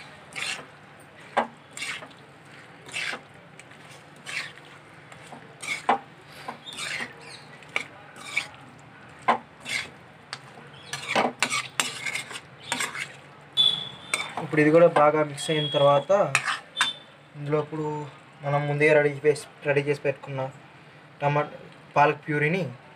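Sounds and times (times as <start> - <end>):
spoon scraping steel pan: 0.0 - 8.6, 9.2 - 10.0, 10.8 - 13.2, 13.9 - 14.5, 16.3 - 17.0.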